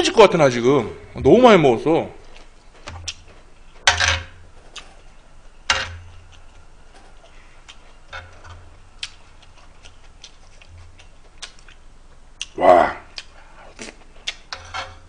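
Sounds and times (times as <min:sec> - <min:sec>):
metal spoon scraping griddle pan: 0:05.7 - 0:08.8, 0:14.3 - 0:15.0.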